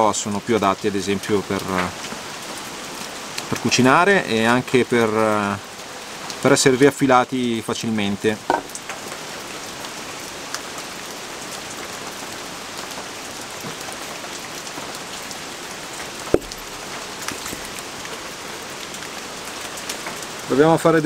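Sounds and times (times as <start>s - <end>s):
steady rain: 0.0s - 21.0s
small drips and ticks: 0.1s - 7.8s, 8.6s - 21.0s
wooden knock of firewood: 8.4s - 8.8s, 16.3s - 17.7s.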